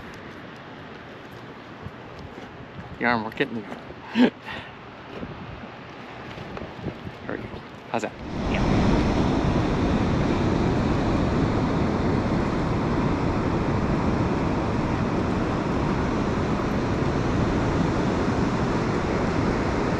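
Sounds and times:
wind buffeting microphone: 1.5 - 4.1, 5.0 - 19.9
ocean surf breaking on beach: 8.0 - 19.9.

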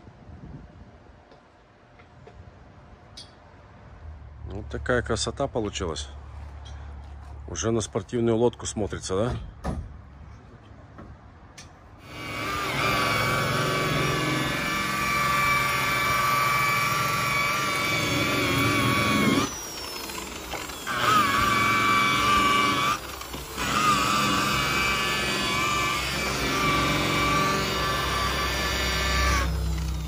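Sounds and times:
electric polisher whining: 12.0 - 30.0.

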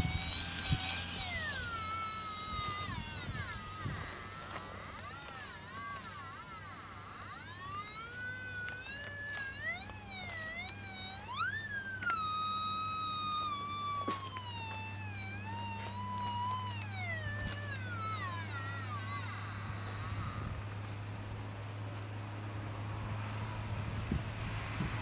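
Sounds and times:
metal detector tone gliding in pitch: 0.0 - 20.9
sharp clicks: 0.0 - 21.0
steady low hum: 0.0 - 25.0.

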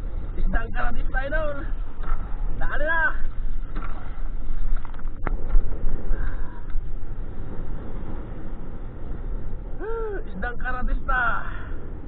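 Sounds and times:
water splashing against boat: 0.0 - 12.0
wind rumbling on microphone: 0.0 - 12.0.

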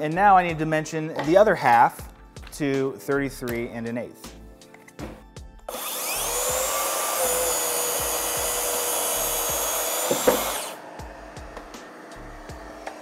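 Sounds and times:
saw blade whining in cut: 5.7 - 10.9.

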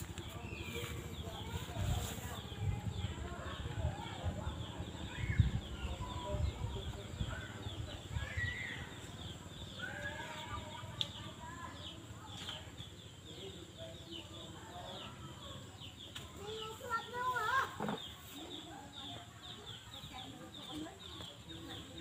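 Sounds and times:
low wind rumble on microphone: 0.0 - 8.5
birds chirping: 0.0 - 22.0
faint distant voices: 0.0 - 22.0.

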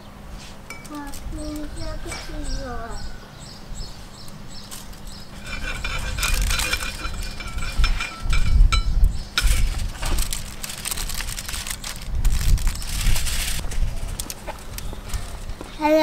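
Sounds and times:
low rumble: 6.4 - 14.3
foil tray crinkling and clicking: 9.5 - 15.5.

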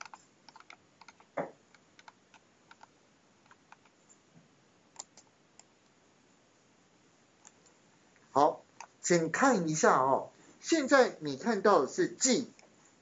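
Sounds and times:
computer mouse clicking: 0.0 - 4.2, 4.9 - 5.8, 7.4 - 7.8.

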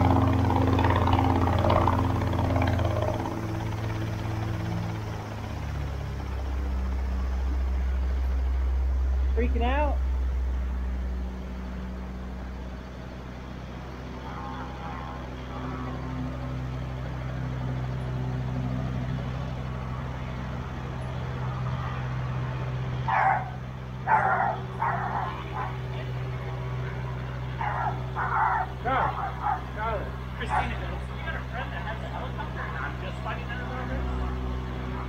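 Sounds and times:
helicopter humming: 0.0 - 35.0
dog barking: 23.1 - 26.0, 27.6 - 29.8, 30.4 - 30.8.

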